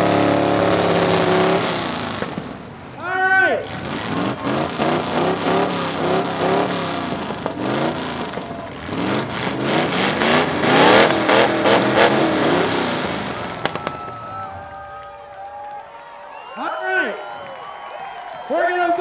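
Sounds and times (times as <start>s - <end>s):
car engine revving: 0.0s - 3.0s, 3.6s - 14.2s.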